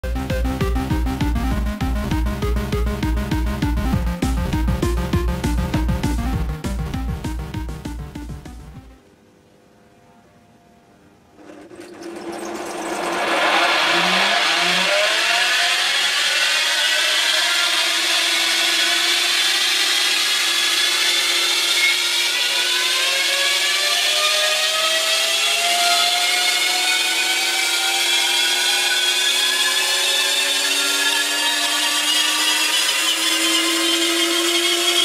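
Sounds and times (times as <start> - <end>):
electric lawn mower motor whine: 11.4 - 35.0.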